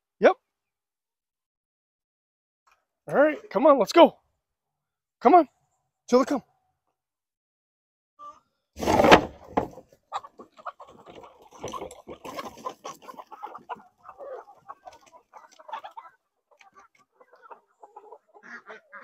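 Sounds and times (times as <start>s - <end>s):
chickens clucking: 8.2s - 19.0s.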